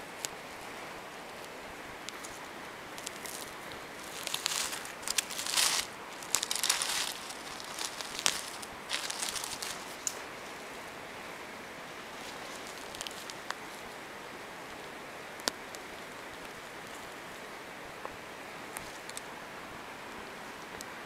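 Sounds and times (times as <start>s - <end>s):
hand rustling dry leaves: 0.0s - 11.0s, 11.8s - 14.1s
steady hiss: 0.0s - 21.0s.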